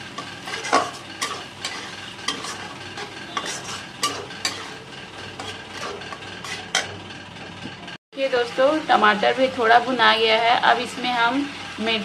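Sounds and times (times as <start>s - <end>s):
oil sizzling: 0.0s - 7.5s
spatula scraping metal pan: 0.0s - 7.5s.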